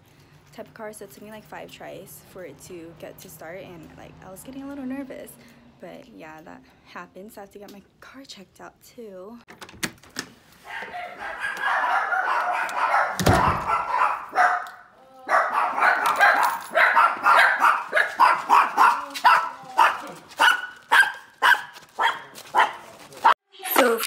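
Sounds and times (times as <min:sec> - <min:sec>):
small dogs barking: 0:10.6 - 0:23.4
heavy thump: 0:13.2 - 0:13.8.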